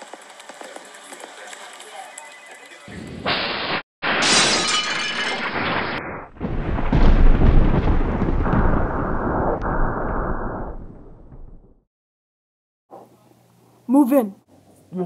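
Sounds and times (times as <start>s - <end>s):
masonry crashing and glass shattering: 4.1s - 7.5s
deep explosion rumble: 5.6s - 11.9s.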